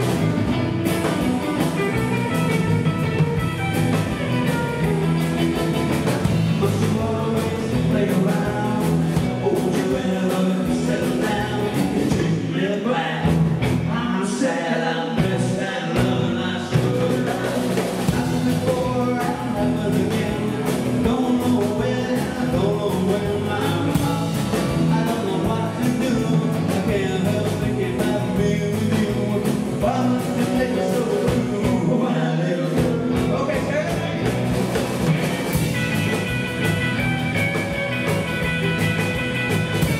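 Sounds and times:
drum kit: 0.0s - 12.6s, 13.2s - 39.9s
bass guitar: 0.0s - 39.9s
electric guitars: 0.0s - 39.9s
man singing: 4.5s - 34.5s.

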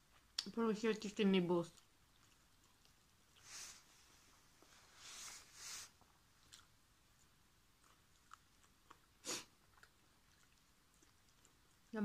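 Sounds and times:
person chewing: 1.7s - 3.7s, 6.0s - 11.9s.

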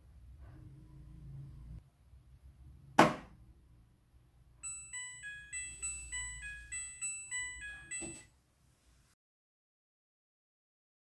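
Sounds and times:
beeped tune: 4.6s - 8.3s.

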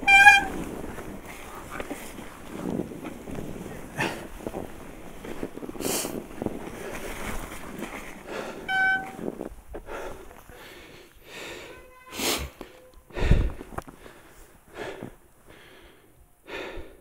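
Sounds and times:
bike brake squealing: 0.0s - 0.8s, 8.4s - 9.3s
breaths or sniffs: 9.8s - 17.0s.

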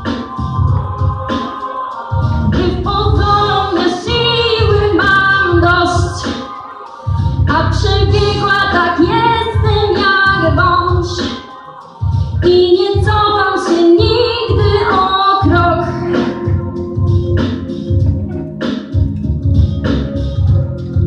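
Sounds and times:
girl singing into microphone: 0.0s - 16.6s
pop music with steady beat: 0.0s - 21.0s.

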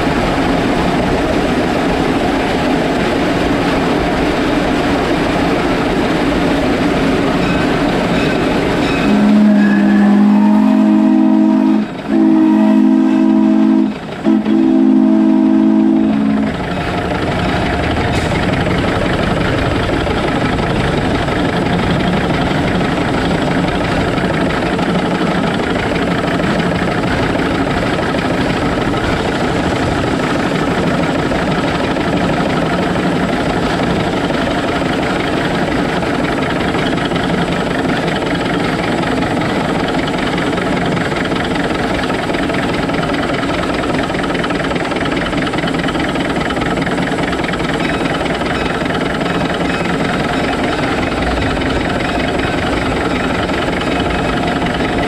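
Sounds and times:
locomotive rolling on track: 0.0s - 55.0s
steam whistle chord: 8.9s - 16.6s.

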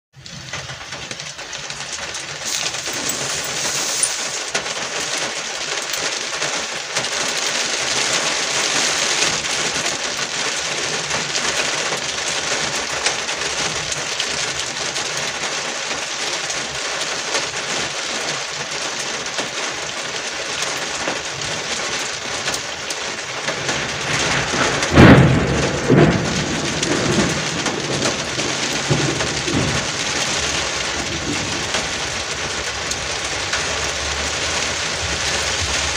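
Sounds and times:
heavy rain on car roof: 0.1s - 35.9s
thunder crack and rumble: 20.8s - 35.9s.

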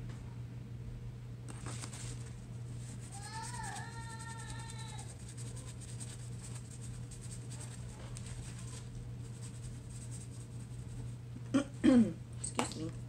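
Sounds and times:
brush scratching paper towel: 1.5s - 11.2s.

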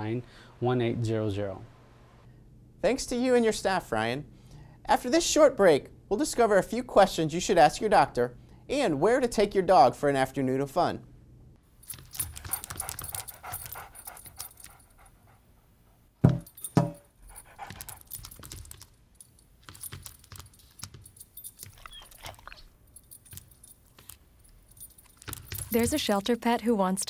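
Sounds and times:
dog collar tags jingling: 11.8s - 15.1s, 16.4s - 26.3s
dog panting: 12.2s - 16.1s, 17.2s - 18.8s.

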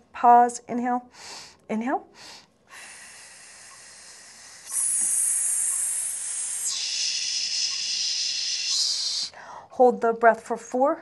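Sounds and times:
woman inhaling: 1.1s - 9.7s
woman exhaling with a hiss: 2.2s - 9.4s.

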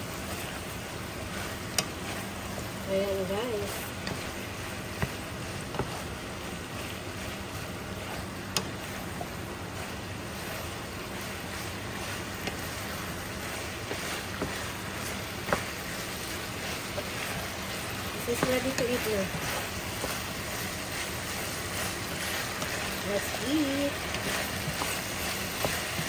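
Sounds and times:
food sizzling in a pan: 0.0s - 26.0s
wooden spatula knocking against pan: 4.9s - 6.1s.

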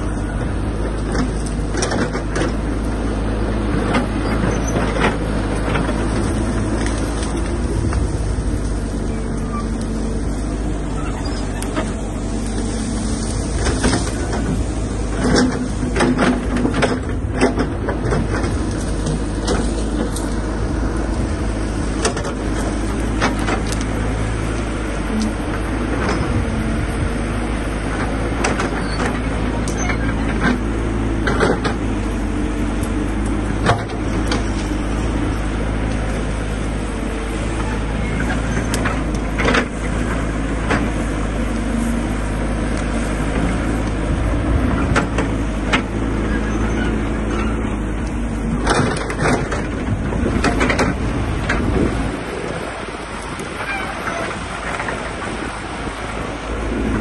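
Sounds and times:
excavator diesel engine running: 0.0s - 57.0s
branches snapping: 4.8s - 46.2s.

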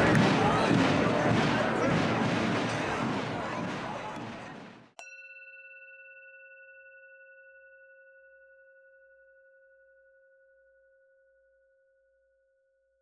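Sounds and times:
bell-like chime ringing: 5.0s - 11.2s.

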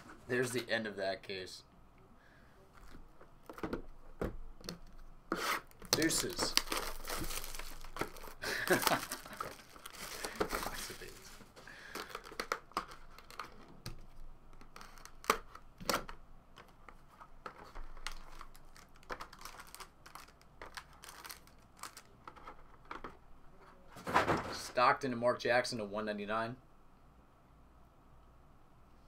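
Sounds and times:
plastic shrink-wrap crinkling: 5.7s - 13.7s, 17.6s - 22.5s.

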